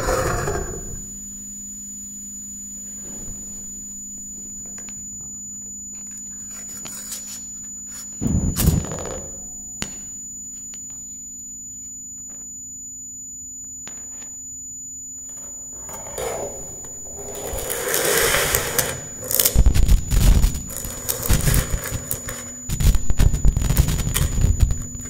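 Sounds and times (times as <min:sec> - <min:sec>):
crackling rumbling noise bursts: 0:08.2 - 0:09.5, 0:16.6 - 0:25.0
low hum: 0:08.2 - 0:10.4, 0:15.3 - 0:25.0
thin steady high tone: 0:09.2 - 0:25.0.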